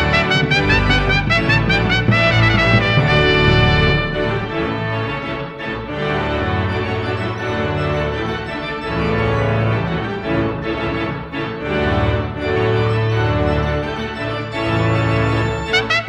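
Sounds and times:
low bass notes: 0:00.0 - 0:06.6
organ chords: 0:00.0 - 0:16.0.

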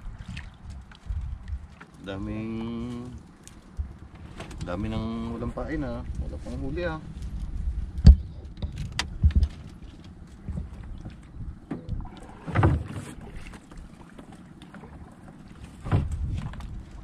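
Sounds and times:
knocks and thumps in boat: 0:03.5 - 0:17.0.

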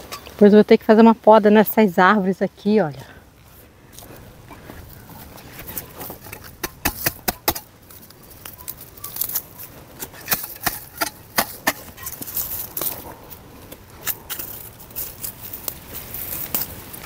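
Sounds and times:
hoe chopping into soil: 0:05.4 - 0:07.7, 0:10.0 - 0:13.0.

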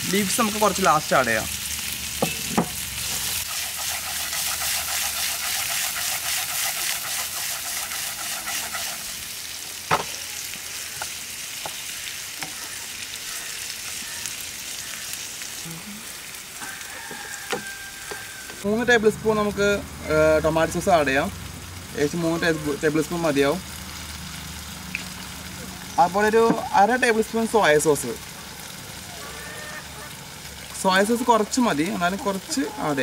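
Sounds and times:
food sizzling in oil: 0:00.0 - 0:33.0
wooden spatula stirring: 0:03.1 - 0:09.0.

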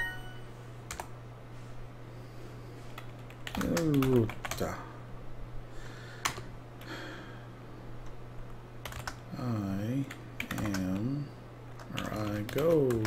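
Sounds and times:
steady low hum: 0:00.0 - 0:13.0
computer keyboard keystrokes: 0:00.9 - 0:01.1, 0:03.0 - 0:04.7, 0:06.2 - 0:06.9, 0:08.8 - 0:09.2, 0:10.1 - 0:11.1, 0:11.8 - 0:13.0.

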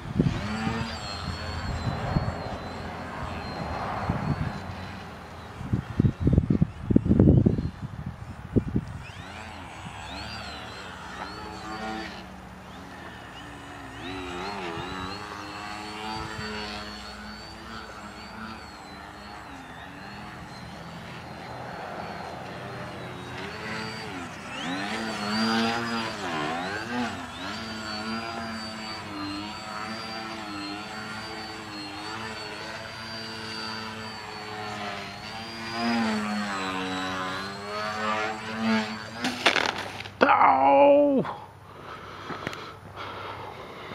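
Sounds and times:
model plane propeller buzzing whine: 0:00.0 - 0:43.9.

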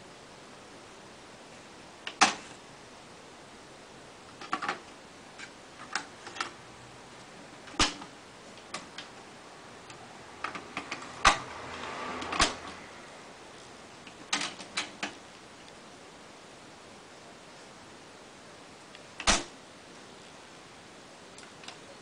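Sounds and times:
cassette door opening: 0:07.7 - 0:08.1, 0:12.2 - 0:12.8, 0:19.2 - 0:19.5
cassette door snapping shut: 0:07.8 - 0:08.1, 0:12.4 - 0:12.6, 0:19.2 - 0:19.5.

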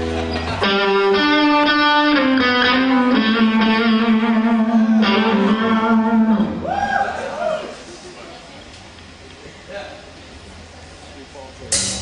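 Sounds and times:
distorted electric guitar: 0:00.0 - 0:06.7.

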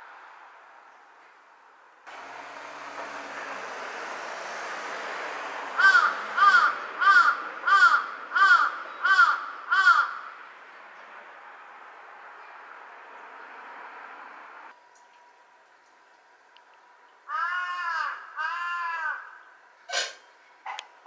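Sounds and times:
crow cawing: 0:05.8 - 0:10.4, 0:17.3 - 0:19.5.

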